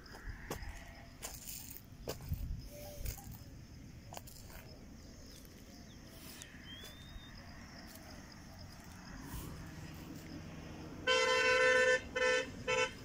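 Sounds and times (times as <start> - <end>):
faint bird calls: 2.6 - 3.4, 5.3 - 7.4
thin whistle: 6.7 - 7.3.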